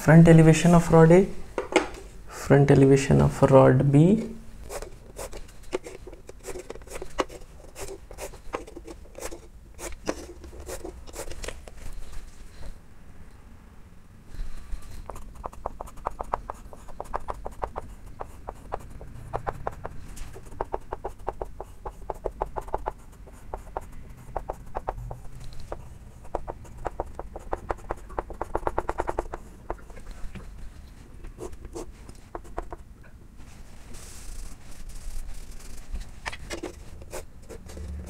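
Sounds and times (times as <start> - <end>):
chalk tapping and scratching: 4.6 - 12.1, 14.7 - 32.8, 33.4 - 38.0.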